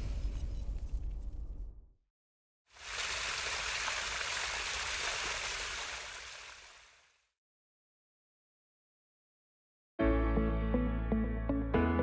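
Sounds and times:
flowing water rushing: 2.8s - 7.2s.

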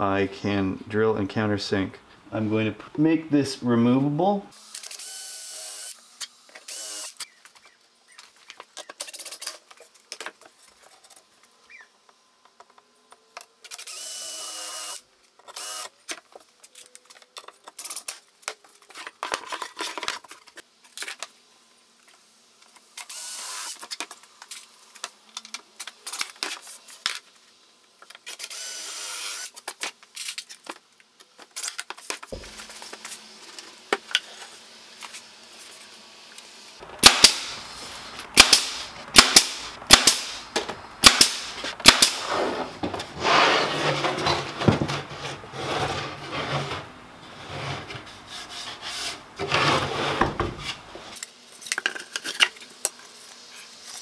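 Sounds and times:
cordless drill drilling wood: 4.8s - 6.0s, 6.7s - 7.2s, 13.8s - 15.0s, 15.6s - 15.9s, 23.0s - 23.8s, 28.4s - 29.5s
nail gun firing: 37.0s - 37.6s, 38.3s - 42.4s.

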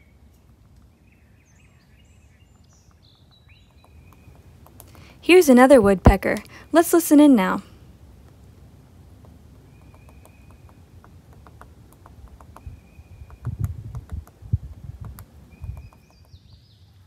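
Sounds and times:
woodpecker tapping on tree: 2.4s - 5.1s, 8.2s - 16.7s.

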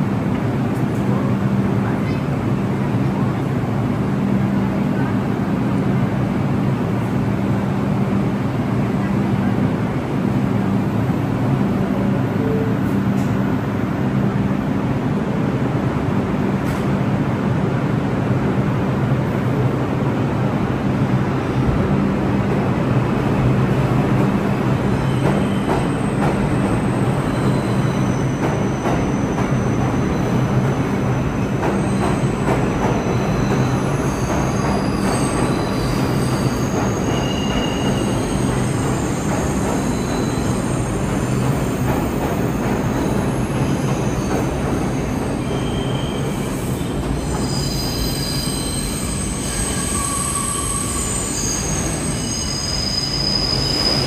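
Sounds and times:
subway train rumbling: 0.0s - 54.0s
high-pitched wheel squeal: 45.0s - 54.0s.

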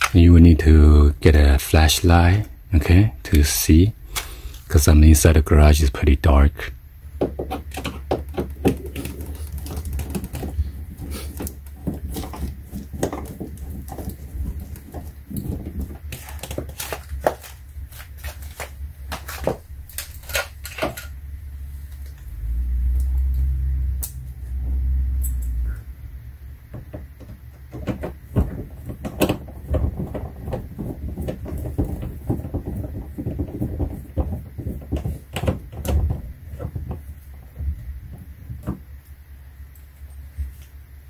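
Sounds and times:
low rumbles: 0.0s - 41.0s
tools and parts clattering: 7.2s - 21.2s, 26.7s - 39.1s.

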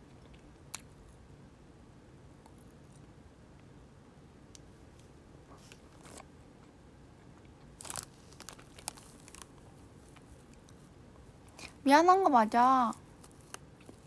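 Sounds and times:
snack wrapper crinkling: 7.6s - 10.8s, 13.2s - 14.0s.

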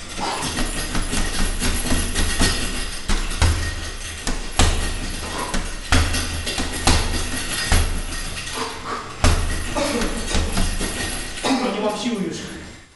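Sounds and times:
punches thudding on heavy bag: 0.0s - 11.4s.

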